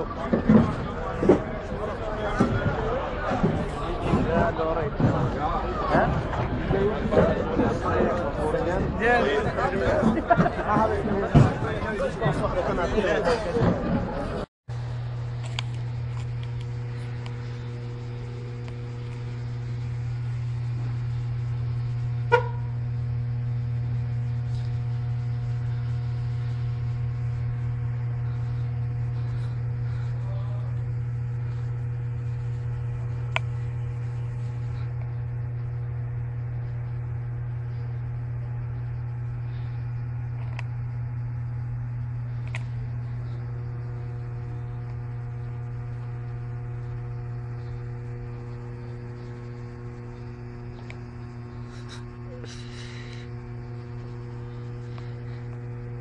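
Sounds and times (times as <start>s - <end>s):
low electrical hum: 0.0s - 56.0s.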